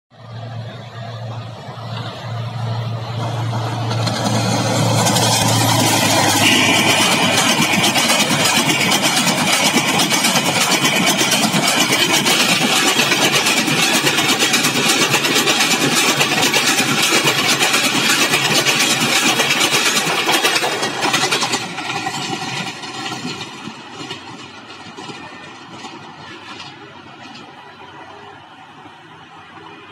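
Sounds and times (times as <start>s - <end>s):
diesel locomotive engine drone: 0.1s - 29.9s
train wheels rattling on track: 0.2s - 29.9s
high steady tone: 4.4s - 14.0s.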